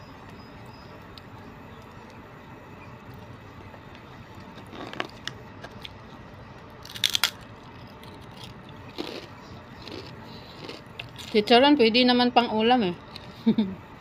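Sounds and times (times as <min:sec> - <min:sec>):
crunchy bite into crackling: 0:06.8 - 0:11.4.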